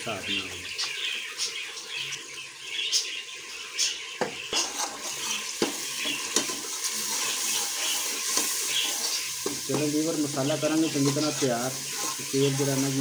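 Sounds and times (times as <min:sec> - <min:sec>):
masala sizzling in oil: 0:00.0 - 0:13.0
ladle scraping and knocking pot: 0:04.5 - 0:09.9
ladle stirring: 0:04.5 - 0:13.0.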